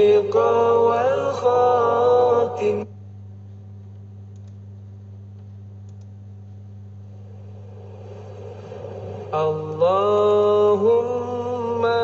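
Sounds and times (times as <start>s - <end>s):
steady low hum: 0.0s - 12.0s
faint clicks: 3.4s - 6.7s.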